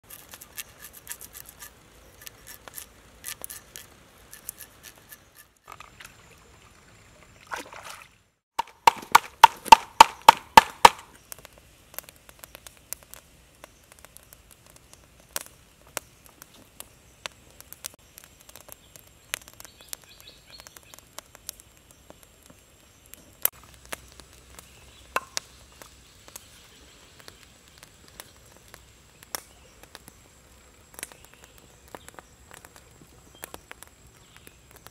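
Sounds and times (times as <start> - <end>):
knife clicks and scrapes: 0.0 - 5.6
knife chopping knocks: 8.6 - 11.0.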